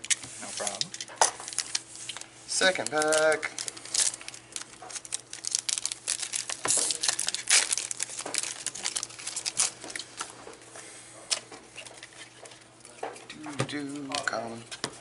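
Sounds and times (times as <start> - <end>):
foil pack crinkling and tearing: 0.0 - 10.1.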